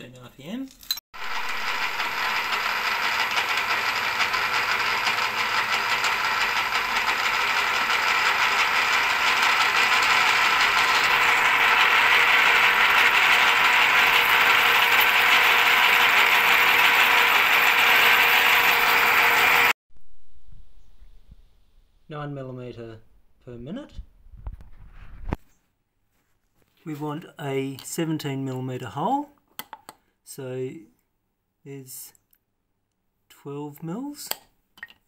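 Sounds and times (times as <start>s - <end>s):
milling machine drilling steel: 1.2s - 19.7s.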